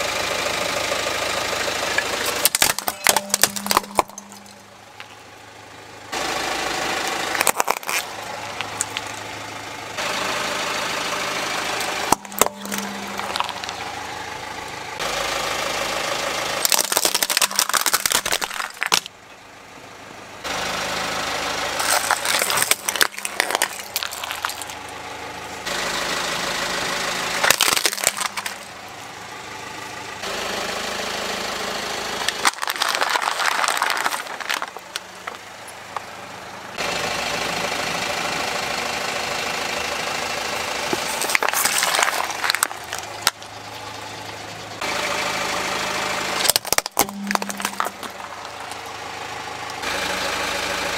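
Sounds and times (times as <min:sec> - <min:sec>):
car engine running: 0:00.0 - 0:50.9
plastic toys cracking and crunching: 0:02.0 - 0:05.1, 0:07.3 - 0:09.2, 0:11.8 - 0:13.8, 0:16.6 - 0:19.1, 0:21.8 - 0:24.9, 0:27.4 - 0:28.7, 0:32.3 - 0:36.0, 0:40.8 - 0:43.4, 0:46.4 - 0:48.8.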